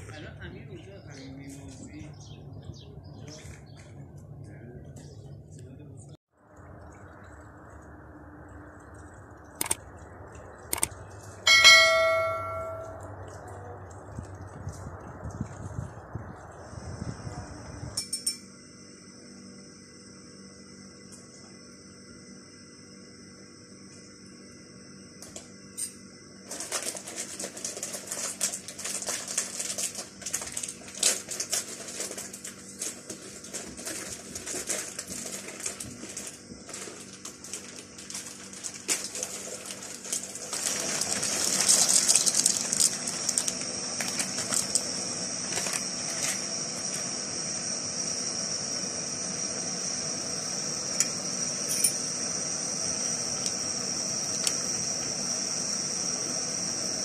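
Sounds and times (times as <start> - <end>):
gas burner hissing: 14.5 - 57.0
pasta rushing into boiling water: 26.4 - 57.0
pasta packet crackling: 26.5 - 46.3.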